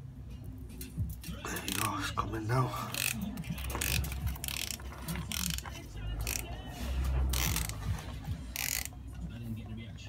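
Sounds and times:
ratchet wrench clicking: 1.6 - 2.0, 2.9 - 6.6, 7.3 - 7.8, 8.5 - 9.0.

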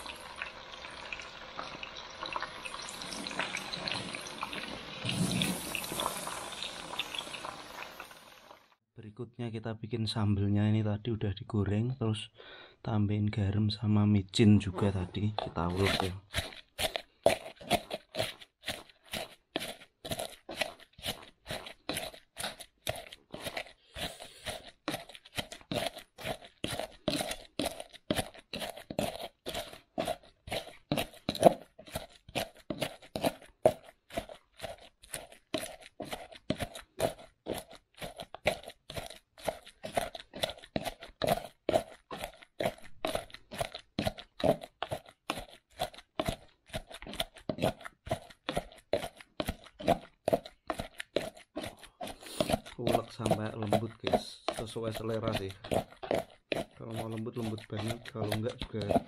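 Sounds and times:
pestle grinding in mortar: 14.6 - 59.0.

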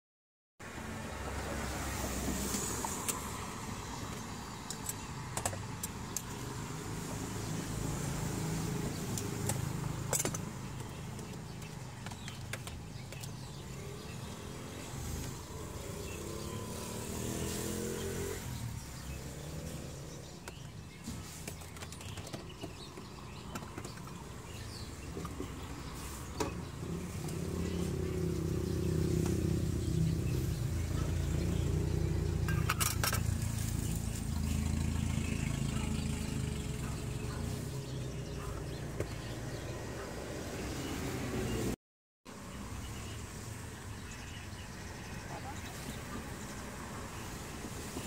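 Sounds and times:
traffic rumble: 0.6 - 48.0
vehicle engine revving: 13.4 - 21.4, 24.5 - 41.8.

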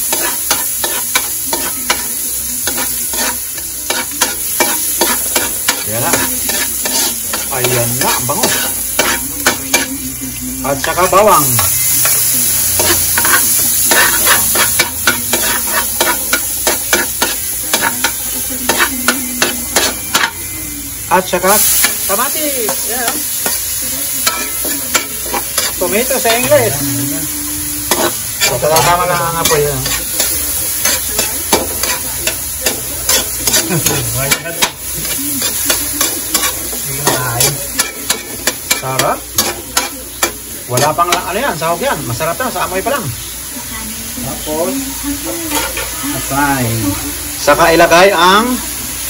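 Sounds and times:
spatula scraping and knocking pan: 0.0 - 9.9, 27.9 - 41.4
onion and garlic sizzling in oil: 0.0 - 49.0.

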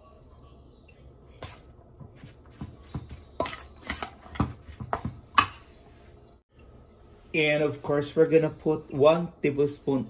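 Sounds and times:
metal spoon scraping steel bowl: 3.3 - 4.4.

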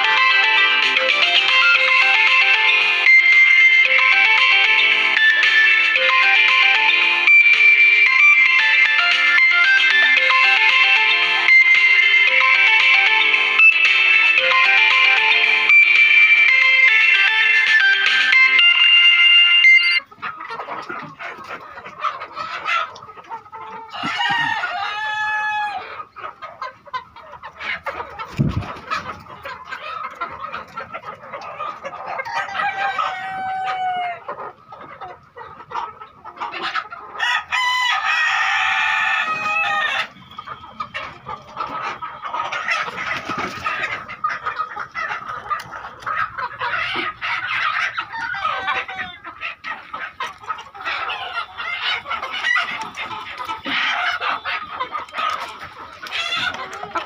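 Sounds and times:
hens clucking: 0.0 - 57.0
roosters crowing: 23.8 - 26.1, 31.6 - 34.4, 36.7 - 41.2, 45.0 - 57.0.

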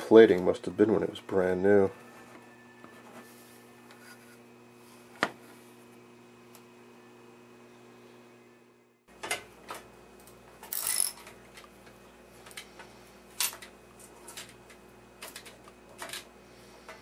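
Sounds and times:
ratchet wrench clicking: 10.7 - 11.2.

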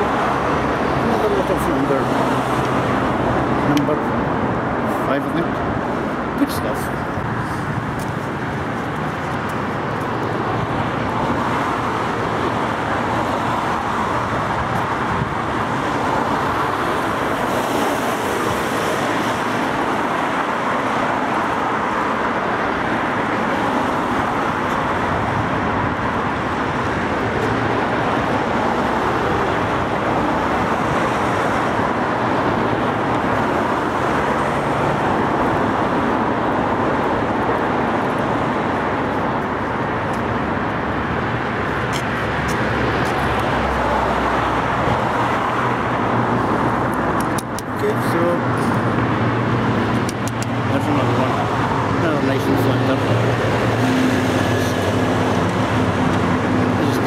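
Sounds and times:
road traffic: 0.0 - 57.0.

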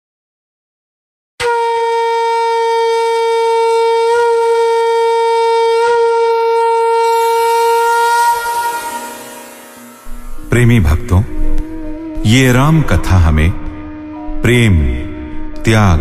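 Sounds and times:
conch shell blast: 1.4 - 12.2.

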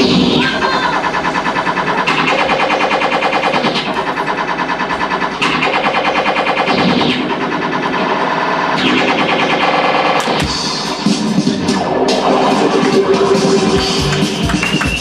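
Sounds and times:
fast electronic music: 0.0 - 15.0.

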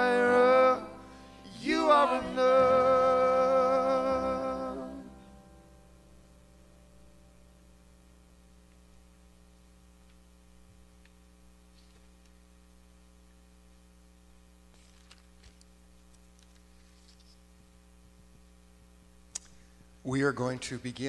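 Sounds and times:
faint hum: 0.0 - 21.0
soft clicks and rustles: 14.7 - 17.6.

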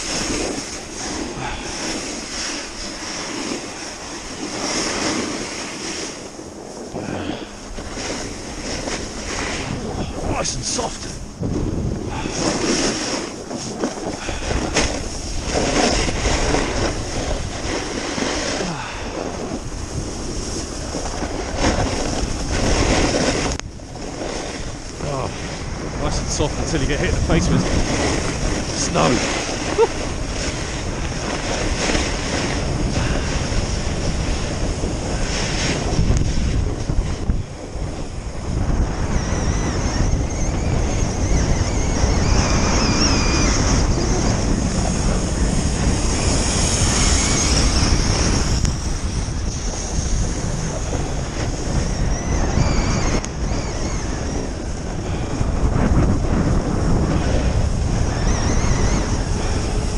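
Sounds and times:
edges scraping on packed snow: 0.0 - 6.4, 7.0 - 37.3, 42.5 - 51.8
wind buffeting microphone: 0.0 - 59.9.

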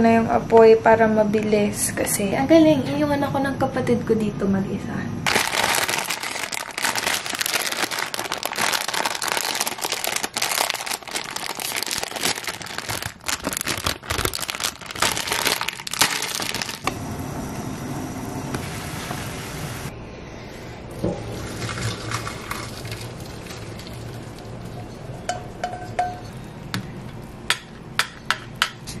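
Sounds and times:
plastic packet crinkling and tearing: 5.3 - 16.9.

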